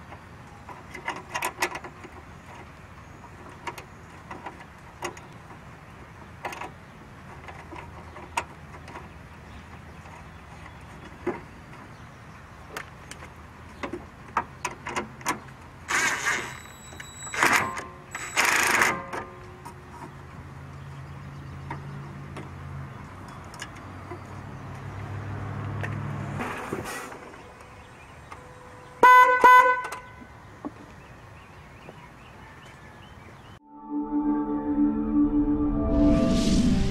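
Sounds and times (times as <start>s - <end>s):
electric car horn honks: 29.0s - 29.9s.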